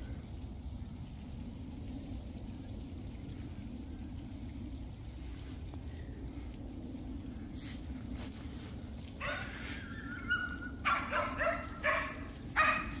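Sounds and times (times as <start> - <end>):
dog yipping and whining: 9.2 - 12.9.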